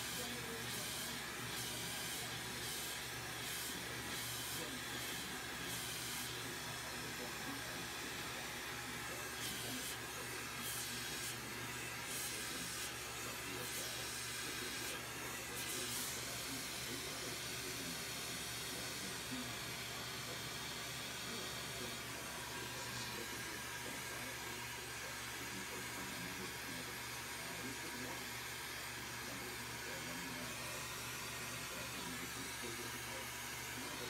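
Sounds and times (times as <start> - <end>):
glassworking torch hissing: 0.0 - 24.9.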